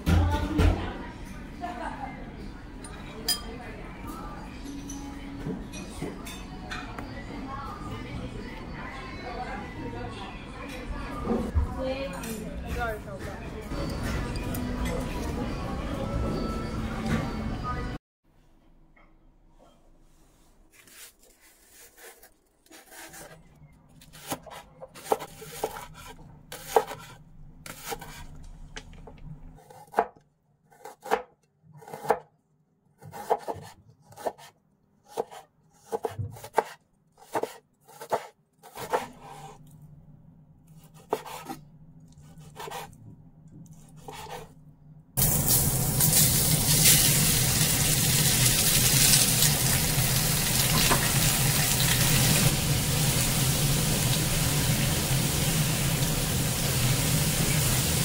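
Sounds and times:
knife cutting on wooden board: 40.8s - 41.6s, 42.2s - 43.0s, 43.6s - 44.5s
meat sizzling in a frying pan: 45.2s - 58.0s.

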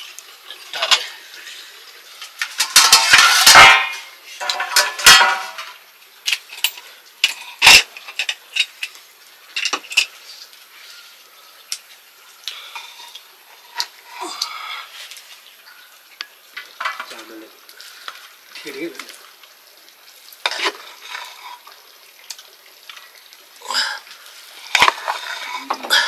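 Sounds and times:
pots and utensils clattering: 0.8s - 1.2s, 2.3s - 10.2s, 16.7s - 17.3s, 20.4s - 21.6s, 24.7s - 26.0s.

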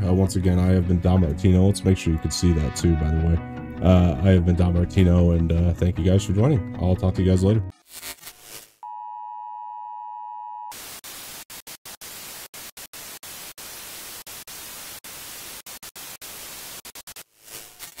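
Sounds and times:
tv static hiss: 10.7s - 18.0s.

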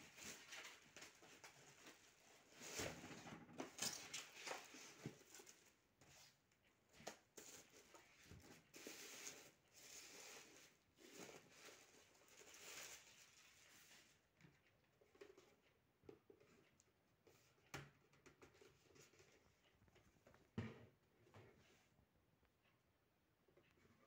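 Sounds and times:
plastic bag and foam crinkling: 0.0s - 2.8s, 8.2s - 14.2s.

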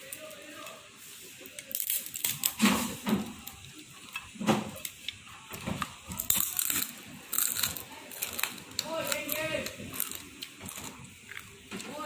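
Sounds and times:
dried fish crunching: 6.1s - 11.6s.

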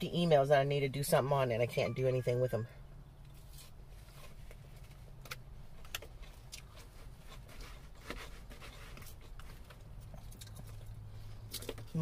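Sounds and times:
low steady hum: 0.0s - 12.0s
person chewing salad: 3.2s - 12.0s.

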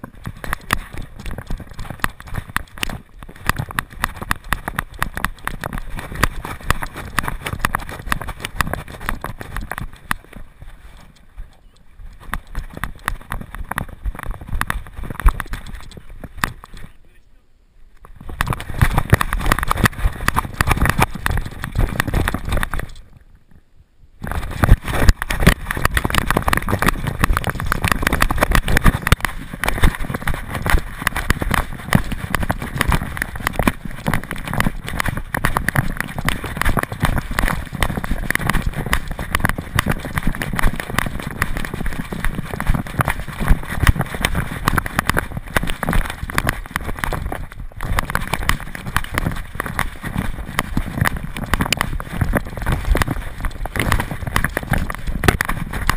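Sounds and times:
camera knocking and rubbing: 0.0s - 17.0s, 18.0s - 23.0s, 24.2s - 55.9s.

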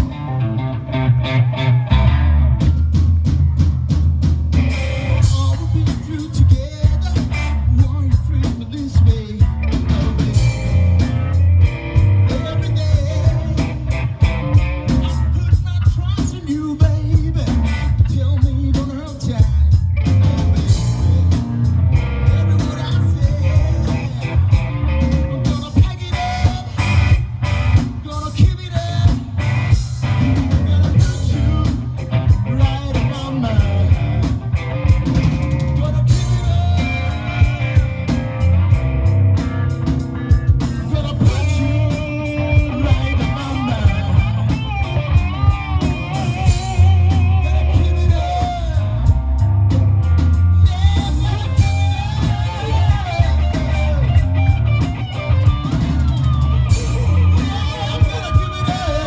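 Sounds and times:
bass guitar: 0.0s - 59.0s
distorted electric guitars: 0.0s - 59.0s
drum kit: 0.0s - 59.0s.

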